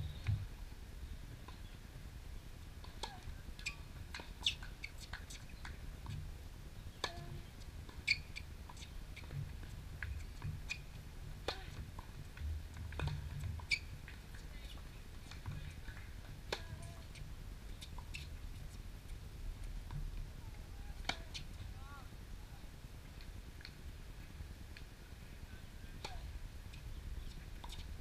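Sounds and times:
low steady rumble: 0:00.0 - 0:28.0
shoe squeaks on court: 0:08.1 - 0:08.4
tennis ball hitting rackets: 0:21.0 - 0:21.5.

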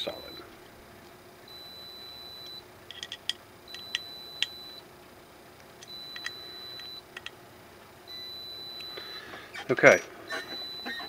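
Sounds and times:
electronic beeper beeping: 0:00.0 - 0:00.4, 0:01.5 - 0:02.6, 0:03.7 - 0:04.8, 0:05.9 - 0:07.0, 0:08.1 - 0:09.3, 0:10.4 - 0:11.0
plastic parts clicking: 0:02.9 - 0:04.5.

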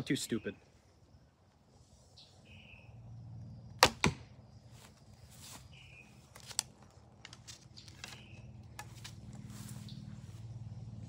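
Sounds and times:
arrow striking target: 0:03.8 - 0:04.3.

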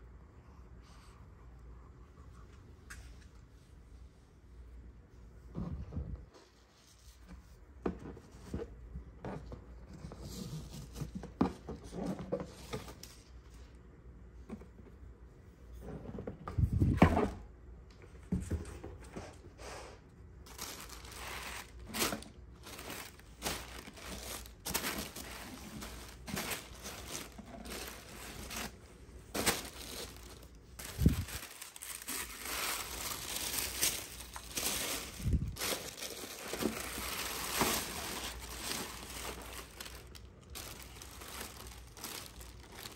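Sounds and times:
tissue paper rustling: 0:20.4 - 0:42.9.

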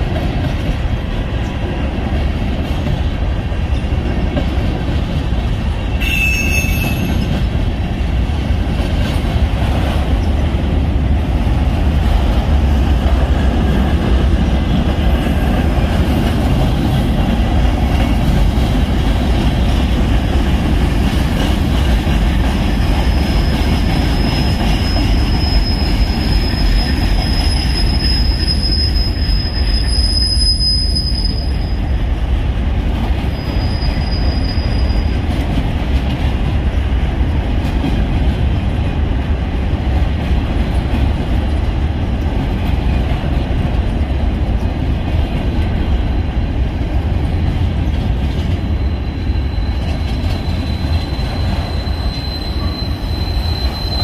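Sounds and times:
freight train wheels rumbling: 0:00.0 - 0:54.0
high-pitched wheel squeal: 0:06.0 - 0:07.3, 0:23.4 - 0:31.8, 0:33.3 - 0:35.1, 0:48.7 - 0:54.0.

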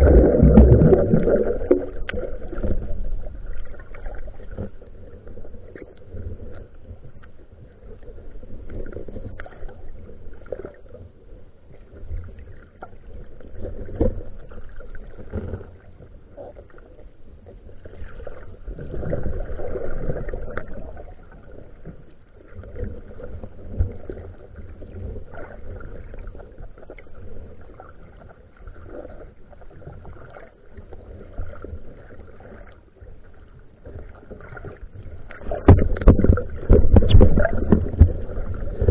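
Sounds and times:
underwater knocks: 0:00.0 - 0:03.3, 0:35.3 - 0:38.9
muffled underwater rumble: 0:00.0 - 0:38.9.

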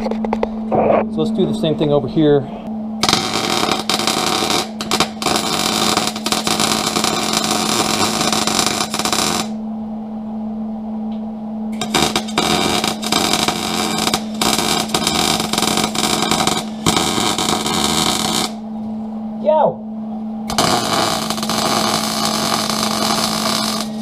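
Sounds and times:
steady low hum: 0:00.0 - 0:24.0
welding arc crackling: 0:03.0 - 0:09.6, 0:11.8 - 0:18.6, 0:20.5 - 0:24.0.

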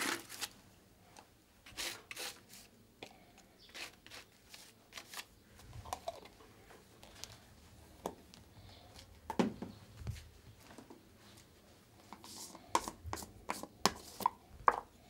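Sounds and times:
hands handling plastic paint jars: 0:00.0 - 0:06.4, 0:12.0 - 0:14.9.

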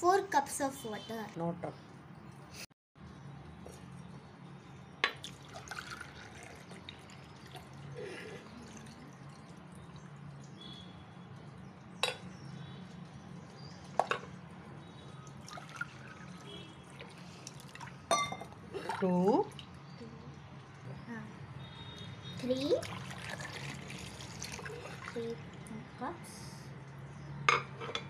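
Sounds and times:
water pouring and splashing: 0:05.0 - 0:11.6, 0:15.2 - 0:19.9, 0:22.3 - 0:25.6
mug clinking against steel pot: 0:18.1 - 0:18.5.

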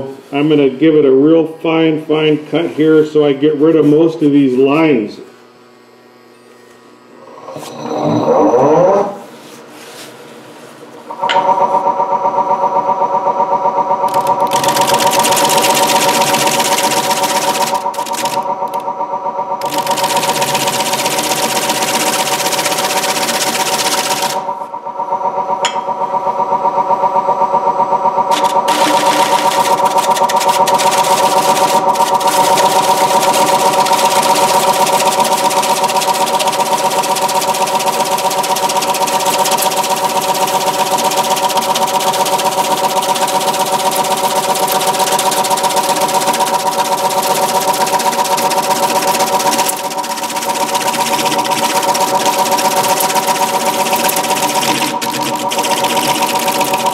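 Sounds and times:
lathe motor hum: 0:10.9 - 0:56.9
turning tool cutting wood hiss: 0:14.1 - 0:18.8, 0:19.6 - 0:24.5, 0:28.3 - 0:56.9.

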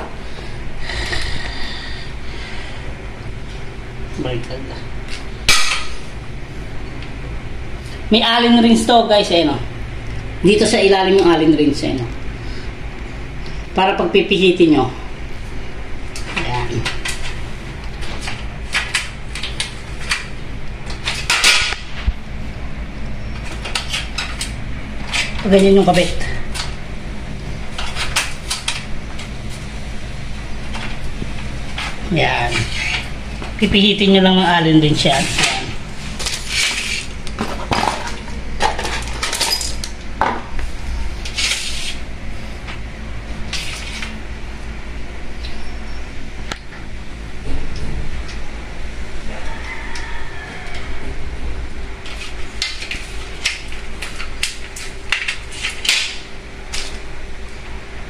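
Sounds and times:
scraping rustle: 0:35.0 - 0:38.2, 0:40.7 - 0:42.7.

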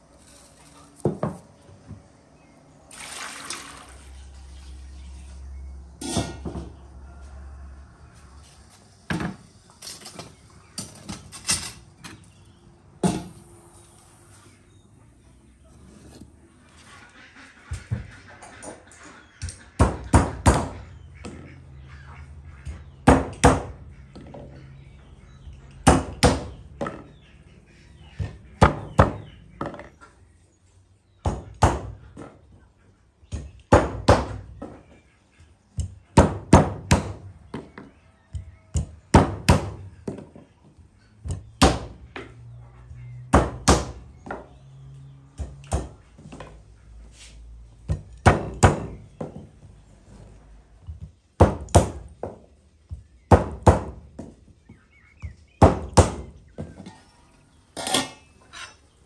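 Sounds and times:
hammer knocking chestnuts on wood: 0:51.4 - 0:52.4.

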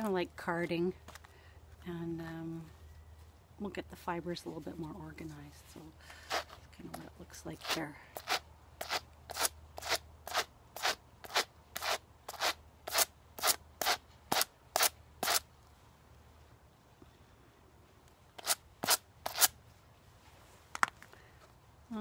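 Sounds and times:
wire brushes scratching dog hair: 0:06.3 - 0:15.4, 0:18.4 - 0:19.5.

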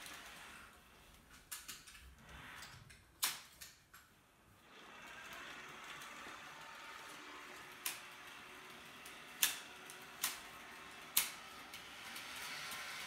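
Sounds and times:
model train whirring: 0:00.0 - 0:01.1, 0:04.6 - 0:13.0.

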